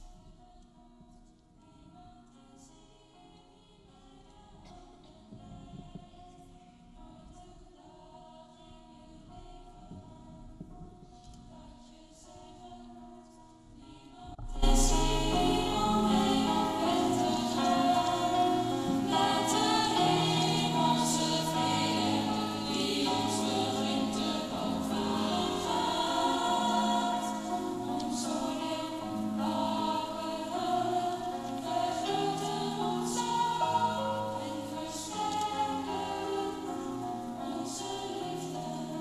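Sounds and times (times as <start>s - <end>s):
choir singing: 0.0s - 10.6s, 11.2s - 39.0s
piano accompaniment: 14.3s - 39.0s.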